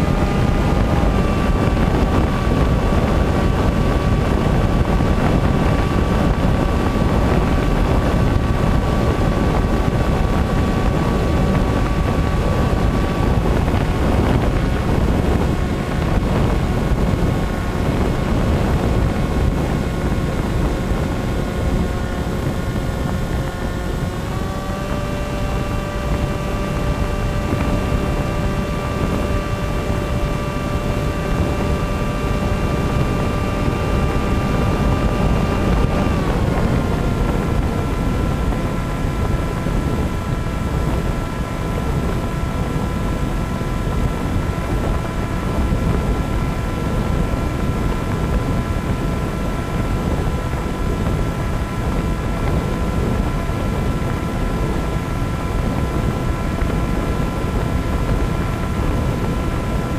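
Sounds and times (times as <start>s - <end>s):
model airplane motor whine: 0.0s - 59.9s
wind rush on microphone: 0.0s - 59.9s.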